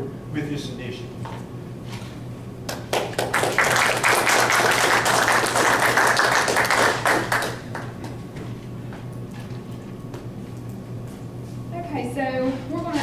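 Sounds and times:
audience applauding: 2.7 - 8.0.

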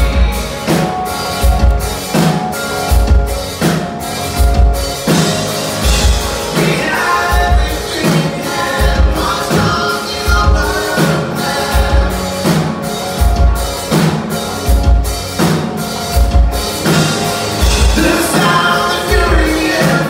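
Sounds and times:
bass guitar: 0.0 - 20.0
drum kit beat: 0.0 - 20.0
electric guitars: 0.0 - 20.0
man singing: 6.4 - 12.9, 17.8 - 20.0.

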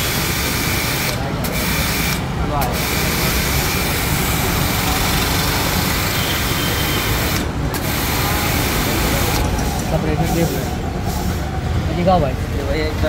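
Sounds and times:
high-pressure water jet hissing: 0.0 - 11.8
pressure washer motor droning: 0.0 - 11.8.

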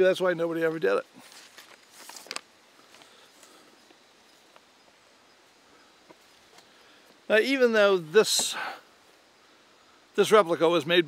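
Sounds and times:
paper rustling: 1.2 - 3.1
sharp paper crackle: 1.3 - 2.5.

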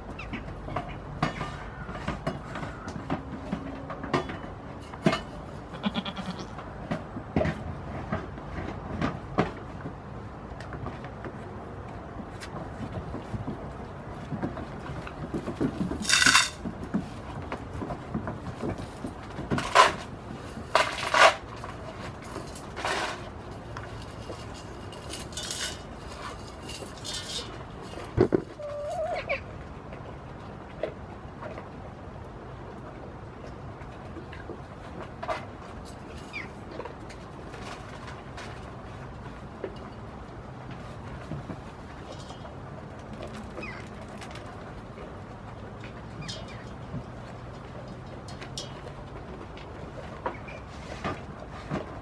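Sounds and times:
young goats bleating: 5.7 - 6.6.

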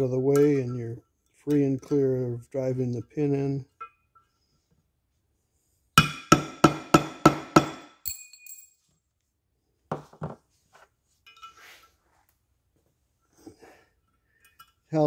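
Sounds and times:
light metal clink: 8.0 - 8.8.

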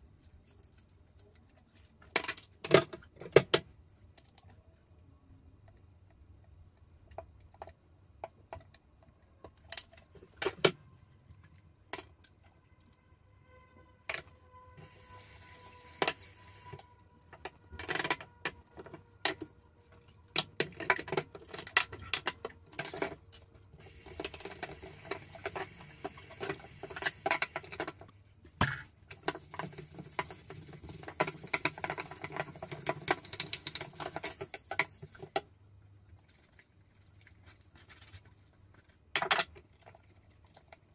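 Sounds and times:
plastic containers clicking and knocking: 2.0 - 3.7, 7.0 - 10.8, 17.3 - 35.5
steady hiss: 14.8 - 16.9, 23.8 - 27.8, 29.2 - 35.4.

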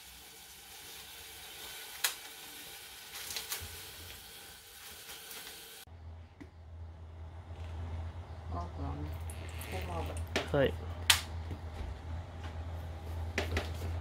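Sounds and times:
vegetables sizzling in a pan: 0.0 - 5.9
crackles: 0.9 - 5.8
low hum: 5.9 - 14.0.

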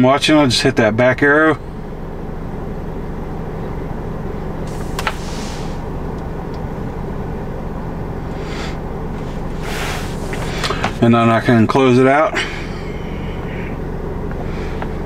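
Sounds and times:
car engine idling: 0.0 - 15.0
brief hiss: 4.7 - 5.8.

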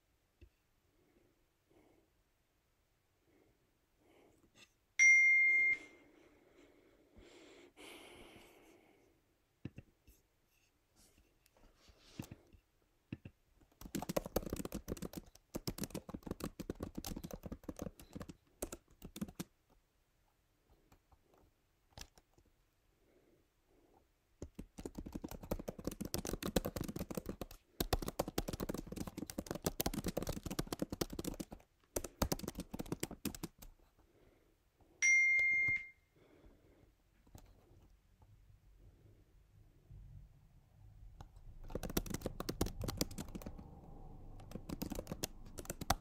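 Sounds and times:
keyboard typing: 13.2 - 19.5, 21.9 - 22.4, 24.4 - 33.8, 41.2 - 46.0.

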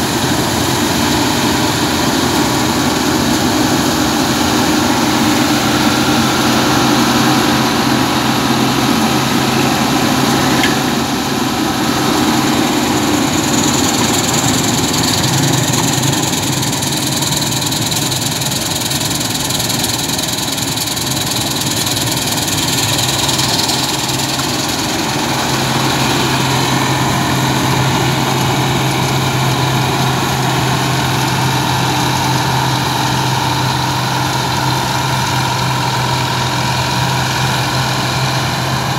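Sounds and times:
combine harvester engine running: 0.0 - 38.9.

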